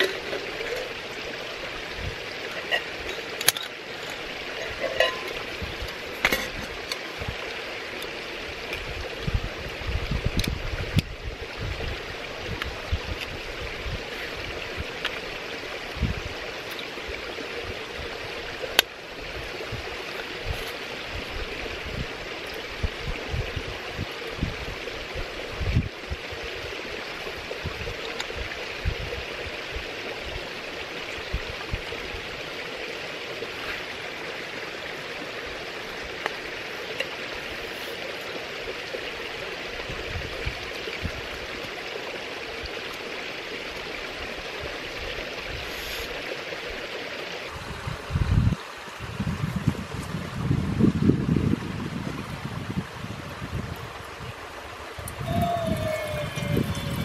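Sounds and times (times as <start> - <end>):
stream water rushing: 0.0 - 57.0
wind buffeting microphone: 1.7 - 3.0, 4.6 - 7.5, 8.8 - 15.0, 15.9 - 16.4, 19.3 - 26.3, 27.6 - 29.3, 47.5 - 57.0.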